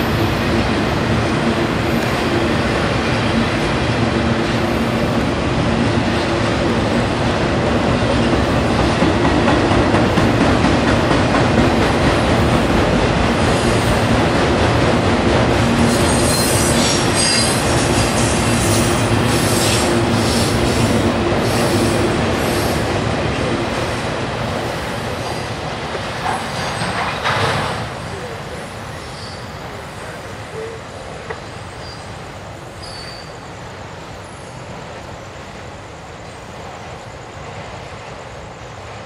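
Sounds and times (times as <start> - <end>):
train wheels clattering on rails: 0.0 - 30.5
high wheel squeals: 15.9 - 19.8, 29.0 - 29.6, 31.6 - 32.2, 32.8 - 33.5.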